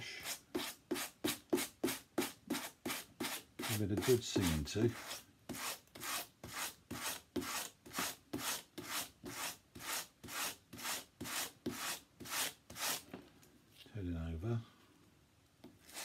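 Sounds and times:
hand brush scratching cord strands: 0.0 - 13.1, 15.8 - 16.0.

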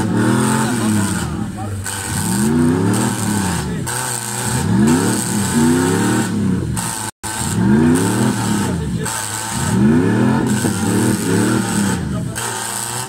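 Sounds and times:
car engine revving hard: 0.0 - 13.0.

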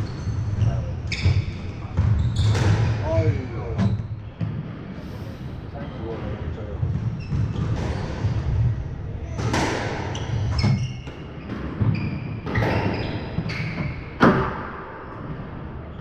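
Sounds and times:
shoes squeaking on wooden floor: 0.0 - 4.6, 5.8 - 8.6, 10.0 - 14.2
squash ball hits: 1.2 - 4.8, 6.8 - 14.8.

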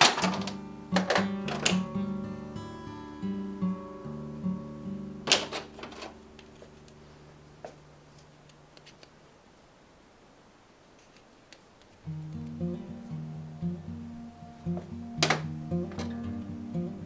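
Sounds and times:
acoustic guitar music: 0.0 - 7.6, 12.0 - 17.0.

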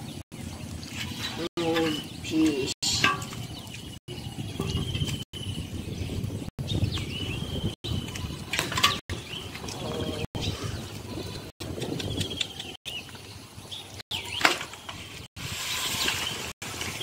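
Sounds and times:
rural background noise: 0.0 - 5.6
birds chirping: 0.0 - 17.0.

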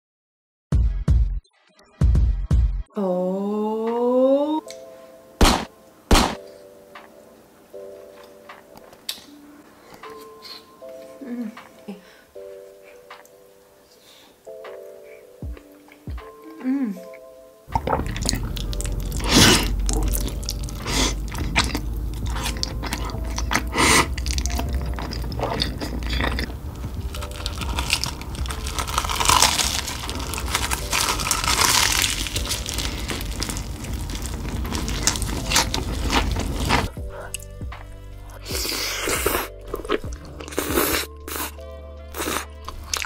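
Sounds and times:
crunching and chewing fried chicken: 17.7 - 37.5, 38.3 - 43.0.

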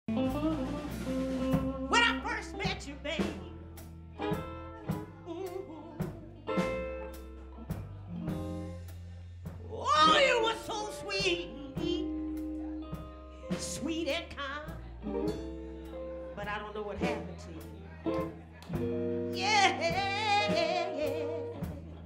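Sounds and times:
blues band playing: 0.1 - 22.0
woman singing: 1.9 - 3.5, 4.9 - 6.8, 9.6 - 15.3, 16.4 - 17.6, 19.2 - 22.0.

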